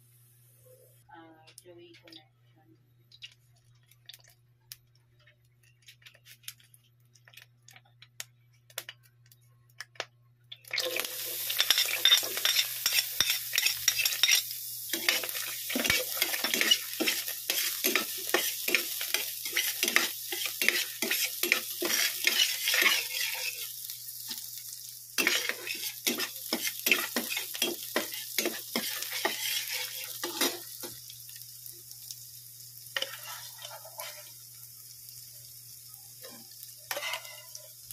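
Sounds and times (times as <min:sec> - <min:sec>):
hot oil ticking: 0:03.1 - 0:05.4
onion and garlic sizzling: 0:10.5 - 0:37.9
spatula scraping a pan: 0:11.6 - 0:23.8, 0:25.2 - 0:30.9, 0:33.0 - 0:34.4, 0:36.2 - 0:37.7.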